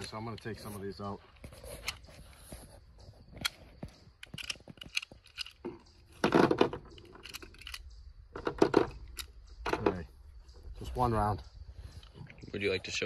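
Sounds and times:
cartridges clicking out of magazine: 4.2s - 5.6s, 6.8s - 8.0s.

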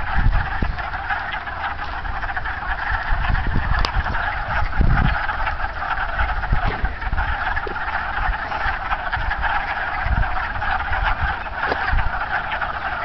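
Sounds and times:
frogs chorus clucking: 0.0s - 13.0s
low thump: 6.6s - 7.8s.

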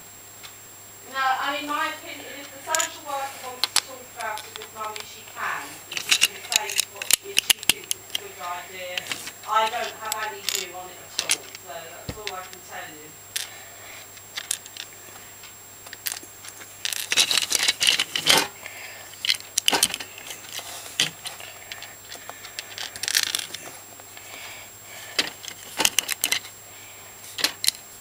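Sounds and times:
plastic bricks clicking: 2.7s - 5.2s, 5.9s - 12.6s, 14.3s - 15.0s, 15.9s - 18.5s, 19.2s - 23.7s, 25.2s - 26.5s, 27.4s - 27.8s.

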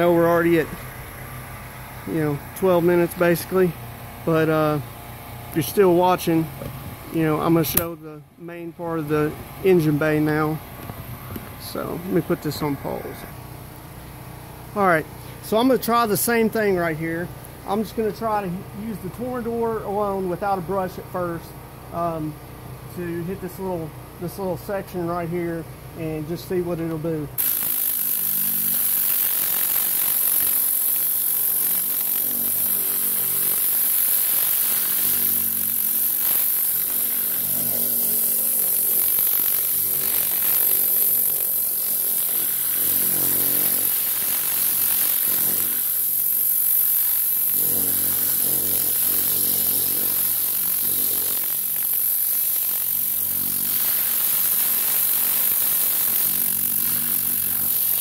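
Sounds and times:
air cleaning gun hissing: 27.4s - 58.0s.

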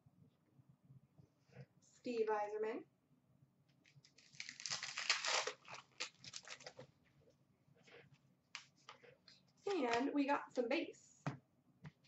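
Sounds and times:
wrapper crinkling: 3.9s - 6.8s.

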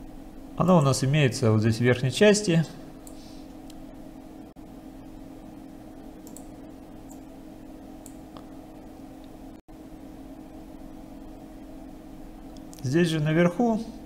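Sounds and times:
low hum and hiss: 0.0s - 14.0s
computer mouse clicks: 6.2s - 6.5s.

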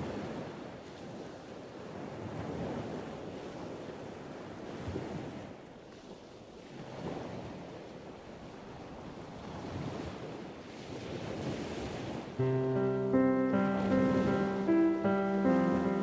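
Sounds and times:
surf washing onto beach: 9.6s - 16.0s
music: 12.4s - 16.0s.

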